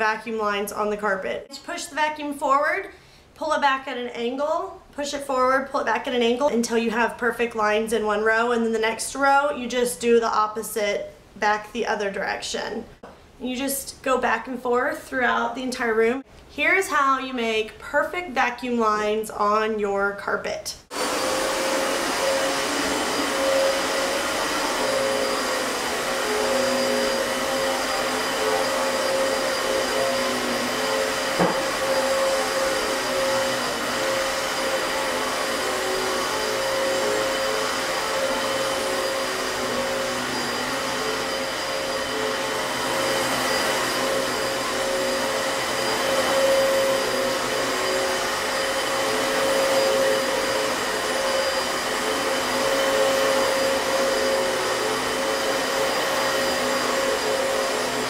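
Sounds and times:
vacuum cleaner running: 20.9s - 58.0s.

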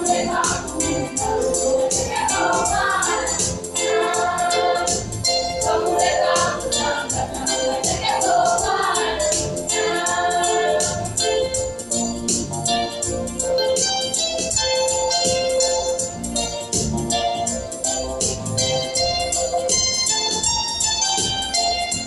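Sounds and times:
choir singing: 0.0s - 11.5s
percussive beat: 0.0s - 22.0s.

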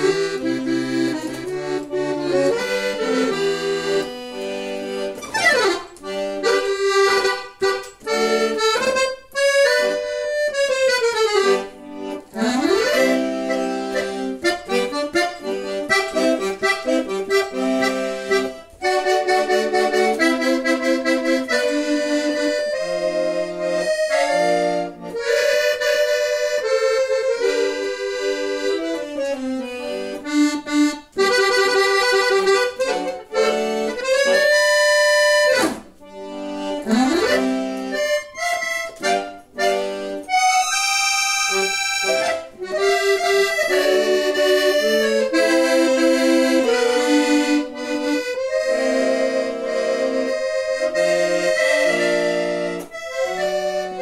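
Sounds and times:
accordion playing melody: 0.0s - 54.0s.

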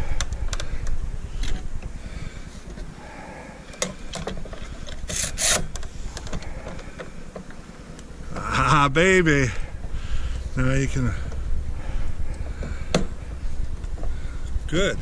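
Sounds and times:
short scraping rasp: 5.1s - 5.7s.

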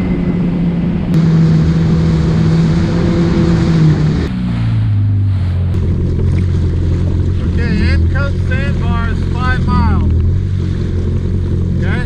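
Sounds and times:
watercraft engine running: 0.0s - 12.0s
water rushing and spray: 1.2s - 12.0s.

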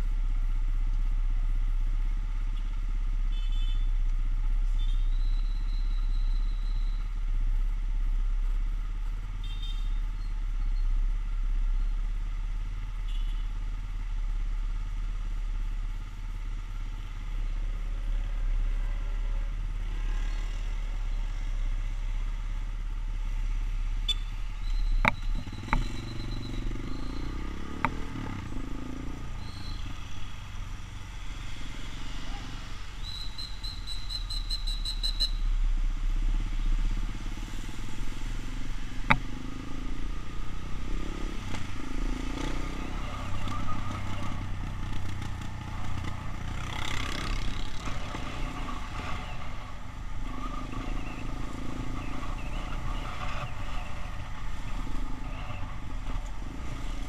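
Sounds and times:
motorcycle engine idling and revving: 0.0s - 57.0s
other motorbikes running: 14.0s - 35.4s, 36.2s - 57.0s.

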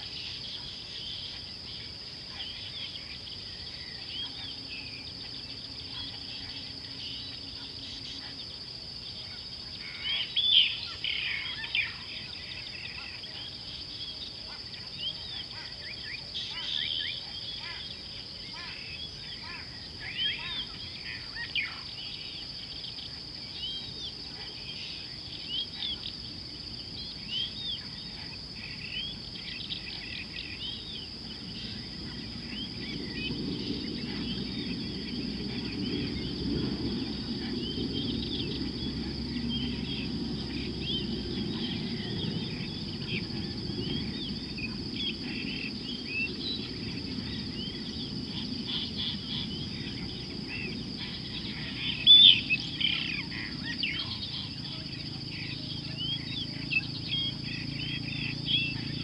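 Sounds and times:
bird chirps and calls: 27.0s - 59.0s.

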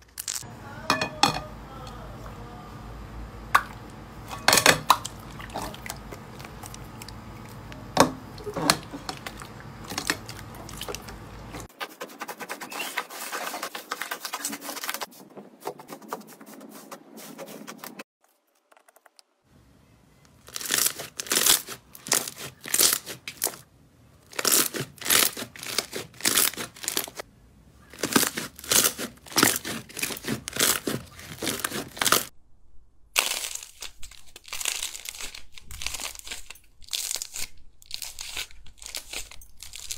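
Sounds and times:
hands squishing slime: 20.4s - 23.6s, 24.3s - 27.2s, 27.9s - 32.3s.

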